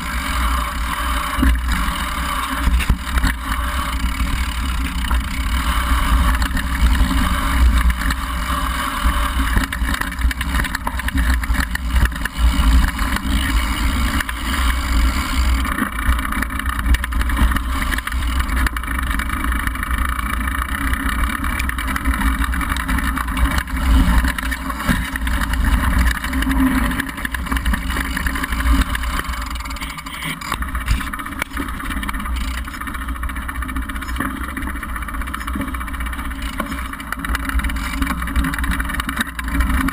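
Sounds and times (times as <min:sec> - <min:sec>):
bike rattles and knocks: 0:00.0 - 0:39.9
bike tyres rumbling on gravel: 0:00.0 - 0:39.9.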